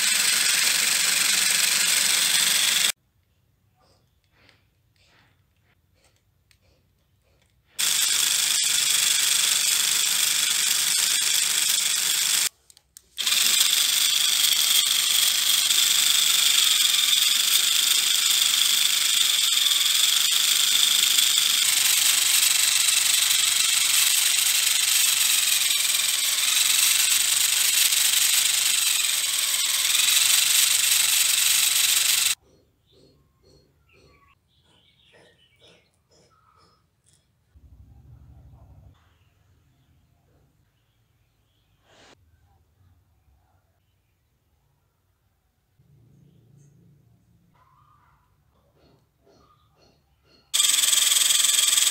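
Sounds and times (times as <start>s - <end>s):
small motor and plastic gears whirring: 0.0s - 3.0s, 4.2s - 32.4s, 48.8s - 51.9s.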